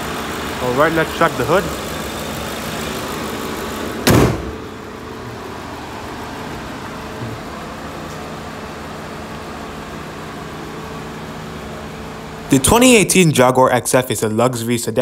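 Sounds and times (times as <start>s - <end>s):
car engine idling: 0.0s - 15.0s
car bonnet slamming shut: 4.0s - 4.7s.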